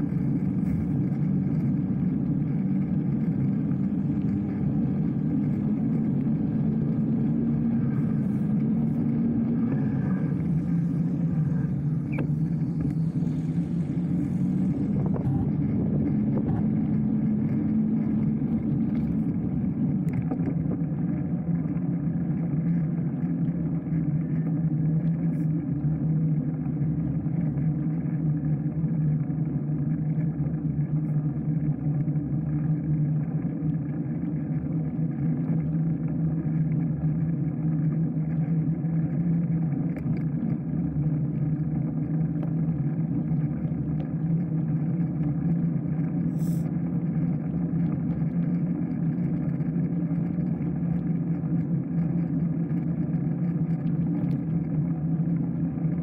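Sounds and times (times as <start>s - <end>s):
wind noise: 0.0s - 20.9s.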